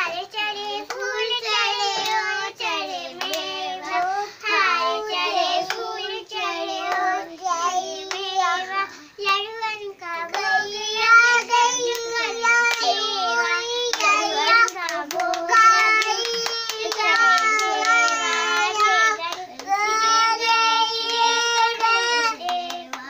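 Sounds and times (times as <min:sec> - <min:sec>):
child singing: 0:00.0 - 0:23.0
hand claps: 0:00.8 - 0:01.2, 0:01.9 - 0:02.3, 0:03.2 - 0:04.6, 0:05.6 - 0:05.9, 0:08.0 - 0:08.4, 0:11.3 - 0:23.0.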